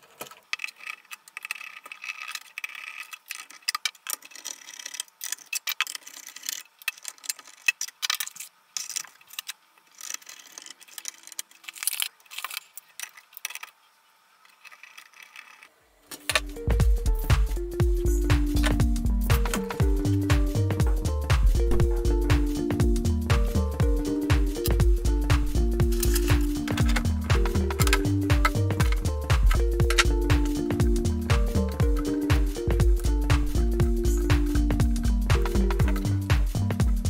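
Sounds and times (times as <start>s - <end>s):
wires and plastic connectors rattling: 0.0s - 13.8s, 25.9s - 30.1s
background music: 16.2s - 37.0s.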